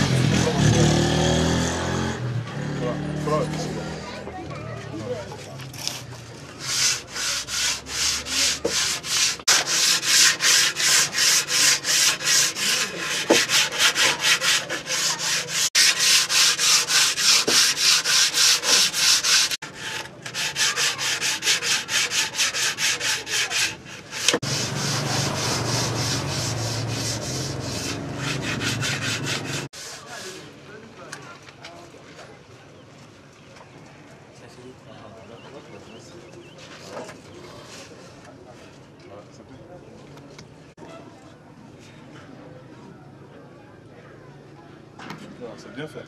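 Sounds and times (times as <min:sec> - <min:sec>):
sandpaper rubbing on wood: 0:06.6 - 0:30.5.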